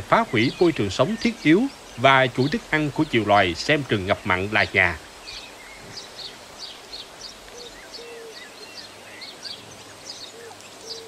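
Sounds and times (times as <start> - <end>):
birds chirping and whistling: 0.0 - 11.0
low hooting calls: 5.3 - 11.0.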